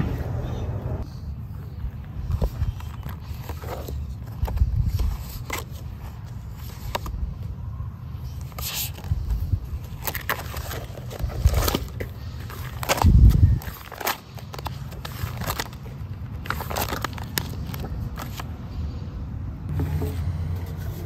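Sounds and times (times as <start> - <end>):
paper scraping: 2.2 - 7.2
wind rumble on microphone: 13.0 - 13.7.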